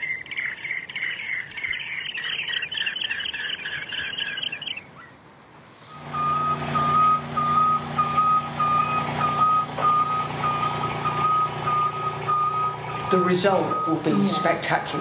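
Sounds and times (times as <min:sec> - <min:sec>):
scissor lift warning beeper: 0:05.9 - 0:15.0.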